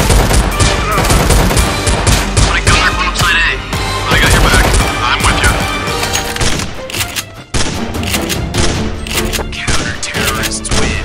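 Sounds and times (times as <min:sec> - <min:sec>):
background music: 0:00.0 - 0:11.0
gunfire sound effects: 0:04.1 - 0:05.0, 0:06.4 - 0:11.0.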